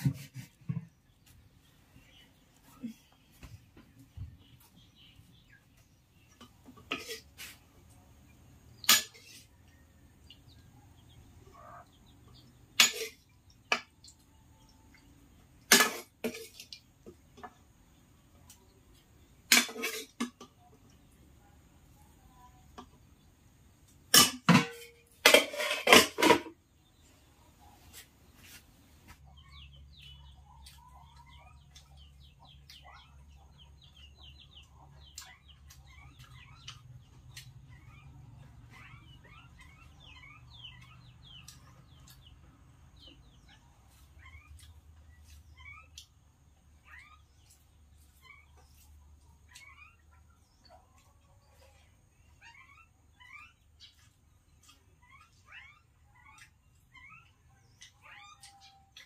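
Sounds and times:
metal ladle clanking on pan: 15.7s - 16.5s.

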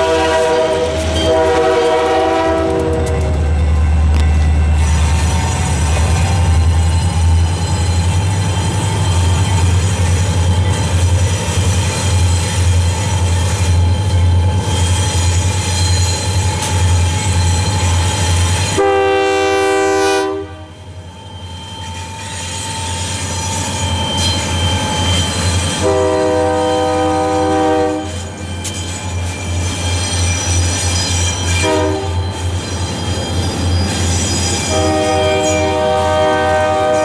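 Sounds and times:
locomotive air horn chord: 0.0s - 3.2s, 18.8s - 20.8s, 25.8s - 28.2s, 31.6s - 32.2s, 34.7s - 37.0s
diesel locomotive engines rumbling: 0.0s - 37.0s.

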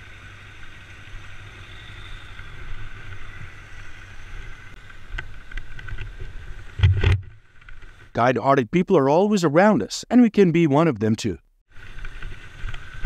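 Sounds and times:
faint steady whine: 0.0s - 8.1s.

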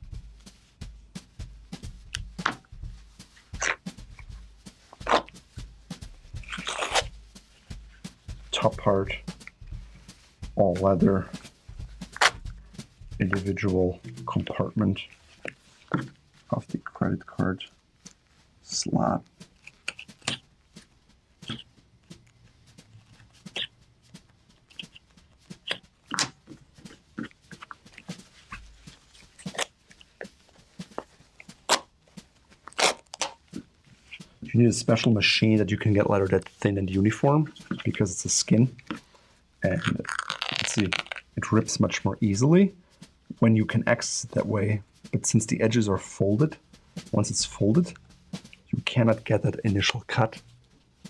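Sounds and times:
leather ripping apart: 6.4s - 7.1s, 12.2s - 12.4s, 25.6s - 30.1s, 30.9s - 32.0s, 32.6s - 33.6s, 39.6s - 41.4s.

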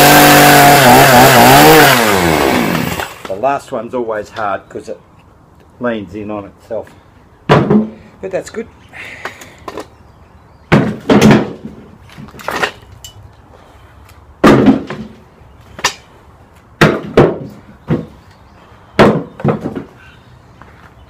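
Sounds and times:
firewood tossed down knocking: 10.7s - 12.8s, 14.4s - 15.2s.

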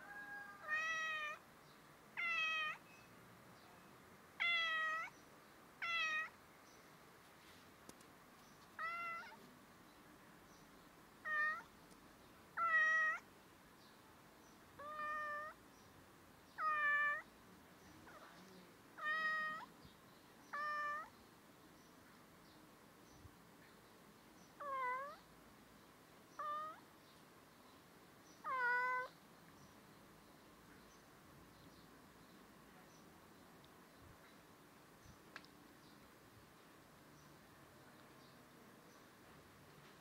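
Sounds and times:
cat meowing: 0.0s - 1.4s, 2.2s - 2.8s, 4.4s - 5.1s, 5.8s - 6.4s, 8.8s - 9.4s, 11.2s - 11.7s, 12.6s - 13.2s, 14.8s - 15.6s, 16.6s - 17.2s, 19.0s - 19.7s, 20.5s - 21.1s, 24.6s - 25.2s, 26.4s - 26.8s, 28.4s - 29.1s.

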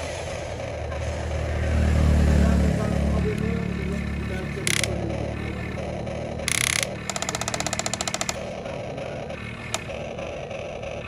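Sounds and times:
toy excavator motors whirring: 0.0s - 11.0s
rapid even clicking: 3.3s - 11.0s.

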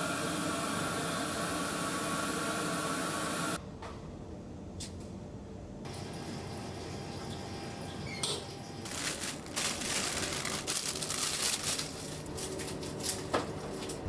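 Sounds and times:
scraping and rustling: 8.9s - 14.0s.

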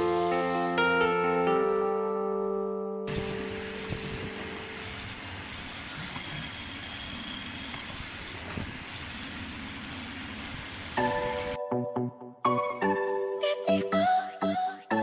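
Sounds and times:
motor high whine: 3.1s - 11.6s.

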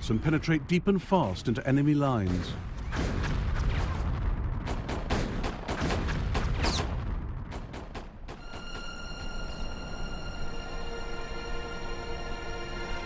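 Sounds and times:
gunfire and artillery booms: 1.0s - 8.4s
eerie held music tone: 8.4s - 13.0s.

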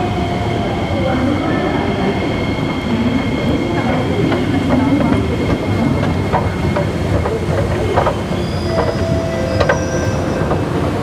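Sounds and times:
escalator rumbling: 2.7s - 11.0s.

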